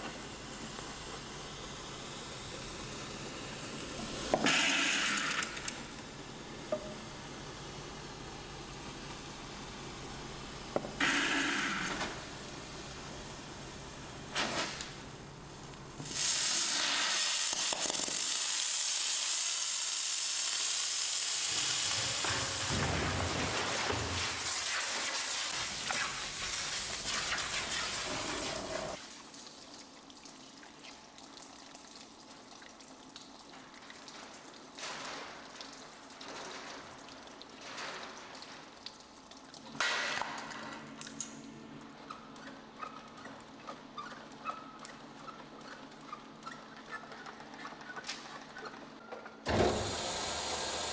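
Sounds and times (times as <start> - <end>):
loud even hiss: 49.5 - 50.9.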